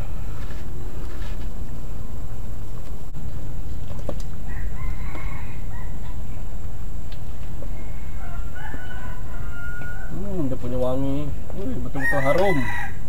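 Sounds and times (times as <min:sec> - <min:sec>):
rooster crowing: 0:04.4 - 0:06.4, 0:07.6 - 0:10.4, 0:12.0 - 0:13.0.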